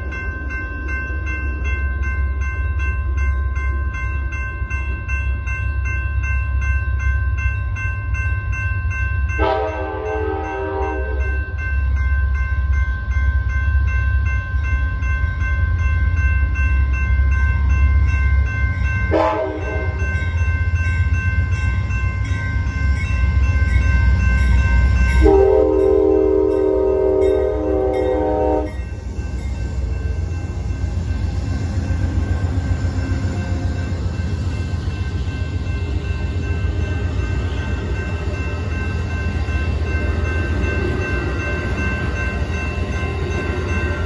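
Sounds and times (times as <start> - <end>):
train wheel and rail noise: 0.0 - 44.0
locomotive horn blasts: 9.4 - 11.3, 19.1 - 20.0, 25.2 - 28.8.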